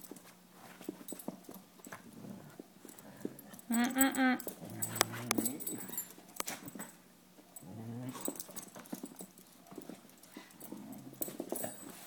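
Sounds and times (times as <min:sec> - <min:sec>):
dogs scuffling in play: 0:00.0 - 0:03.7, 0:08.1 - 0:12.0
dog growling low: 0:04.5 - 0:06.0, 0:07.6 - 0:08.4.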